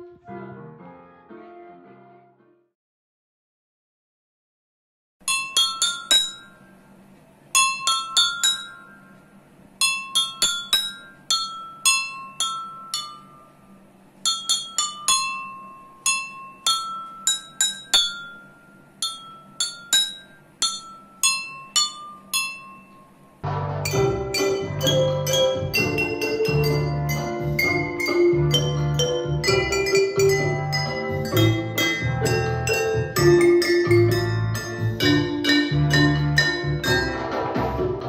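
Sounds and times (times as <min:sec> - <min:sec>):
tune played on water glasses: 0:07.6 - 0:38.0.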